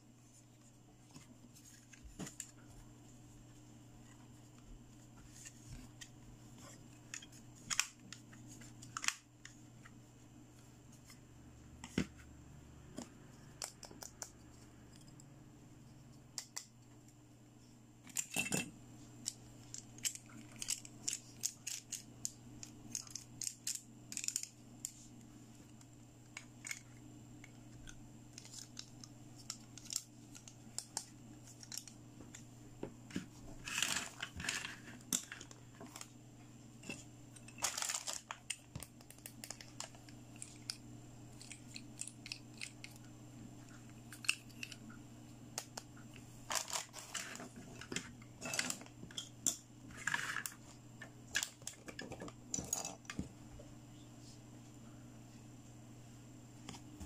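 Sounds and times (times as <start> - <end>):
plastic toy pieces clicking: 22.9 - 24.6.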